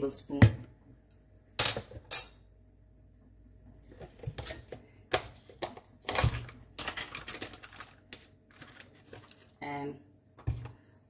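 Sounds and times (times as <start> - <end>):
kitchen things knocking and clicking: 1.6 - 2.1.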